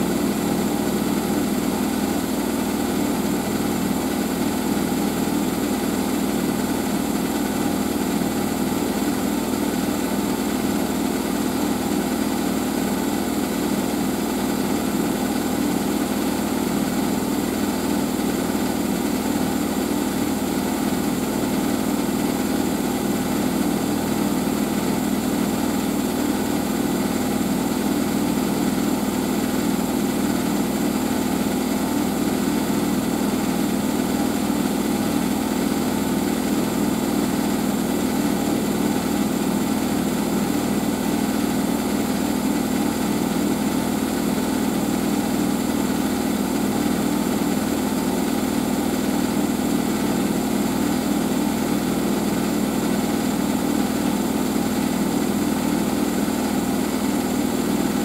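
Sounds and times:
washing machine humming: 0:00.0 - 0:58.0.

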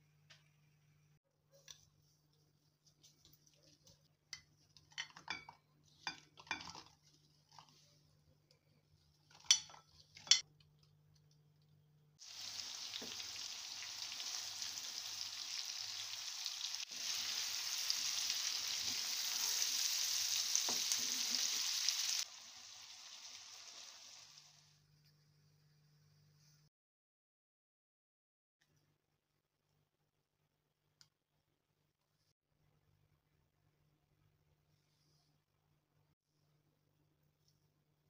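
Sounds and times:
wooden spatula stirring: 0:01.5 - 0:10.4
metal spoon clinking bowl: 0:09.3 - 0:10.4
okra sizzling in oil: 0:12.2 - 0:24.8.

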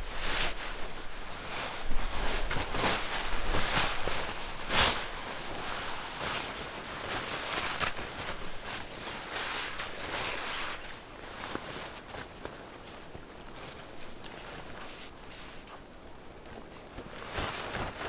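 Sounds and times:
blanket rustling and swishing: 0:00.0 - 0:15.9, 0:16.5 - 0:18.0.

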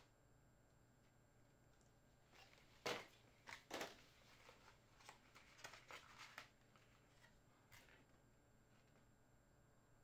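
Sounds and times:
cardboard rustling: 0:02.4 - 0:08.1.

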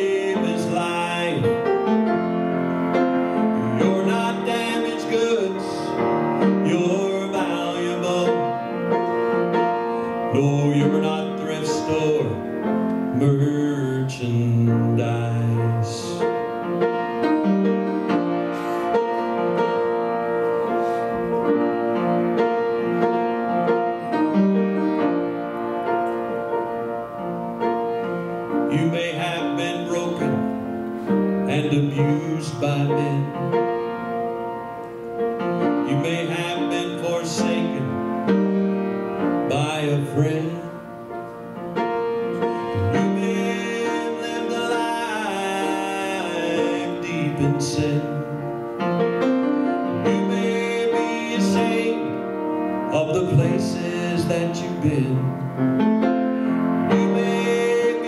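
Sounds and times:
piano playing gospel chords: 0:00.0 - 0:58.0.

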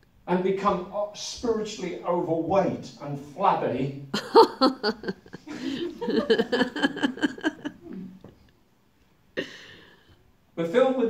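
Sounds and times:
laughter: 0:04.2 - 0:07.8.

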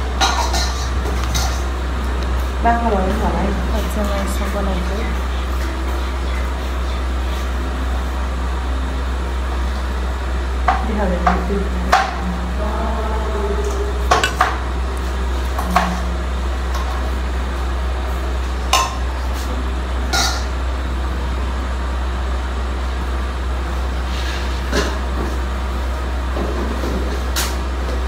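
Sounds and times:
metal spoon clinking and scraping: 0:14.2 - 0:14.4.

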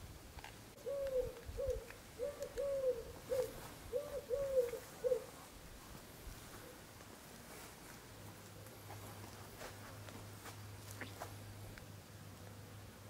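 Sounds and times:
dove cooing: 0:00.8 - 0:05.5.

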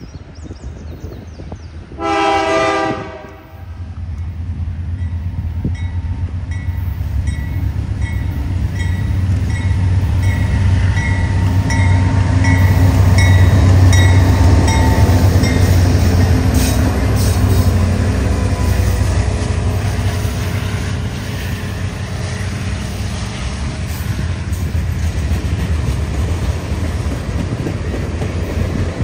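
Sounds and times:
diesel locomotive engine drone: 0:00.0 - 0:29.0
train wheels clicking over track: 0:22.8 - 0:29.0.

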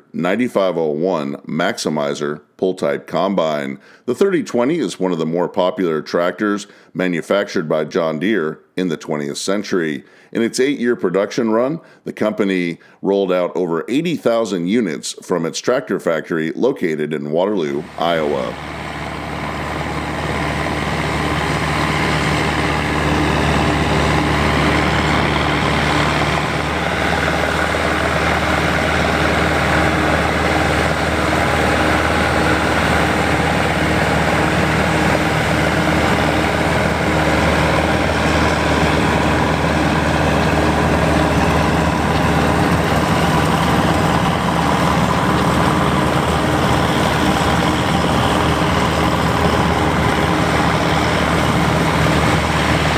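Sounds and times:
tractor engine working under load: 0:17.8 - 0:52.9
combine threshing rush: 0:17.9 - 0:52.9.

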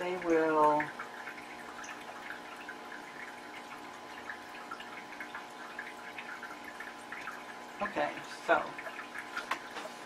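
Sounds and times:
small water drips: 0:00.0 - 0:10.0
water trickling: 0:00.0 - 0:10.0.

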